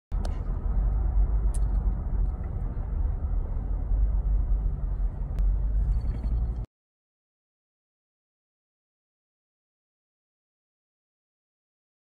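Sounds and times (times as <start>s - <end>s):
car cabin road and engine rumble: 0.1s - 6.7s.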